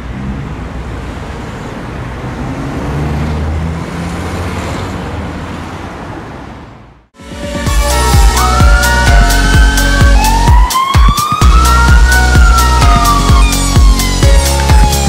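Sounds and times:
road traffic noise: 0:00.0 - 0:15.0
fire engine running: 0:07.2 - 0:15.0
siren: 0:07.5 - 0:15.0.

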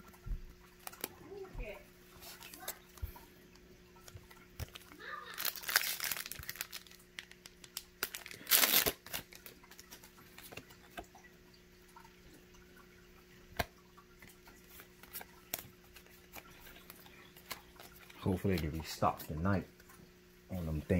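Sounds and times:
foil wrapper ripping: 0:04.6 - 0:10.6.

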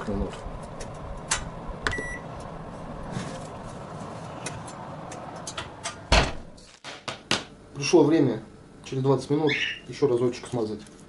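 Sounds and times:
oven door thump: 0:05.7 - 0:06.5.

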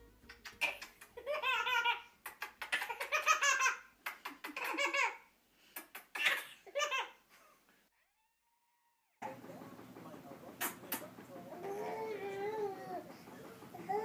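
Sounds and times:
baby laughing: 0:00.2 - 0:07.6, 0:11.5 - 0:14.0.

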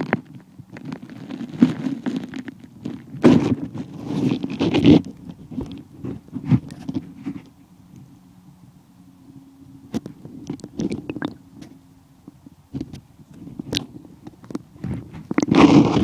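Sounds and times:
underwater stream rumble: 0:10.2 - 0:11.9.

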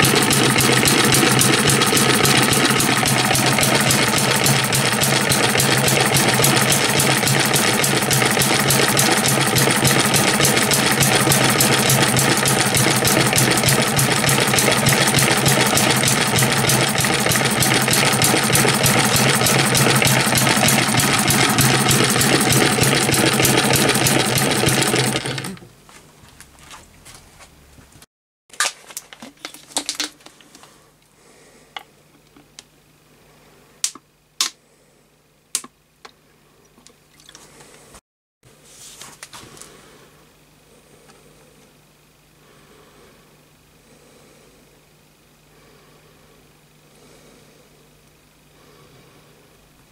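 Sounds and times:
model gas engine rattling: 0:00.0 - 0:25.7
sharp clicks and taps: 0:33.8 - 0:34.6.

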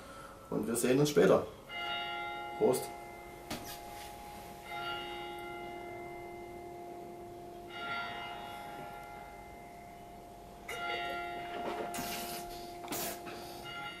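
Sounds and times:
church bell tolling: 0:00.0 - 0:14.0.

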